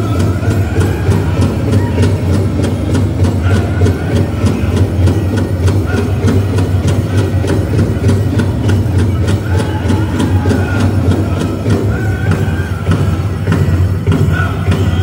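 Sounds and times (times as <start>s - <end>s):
big drum pounding fast beat: 0.0s - 15.0s
dancers' bells jingling: 0.0s - 15.0s.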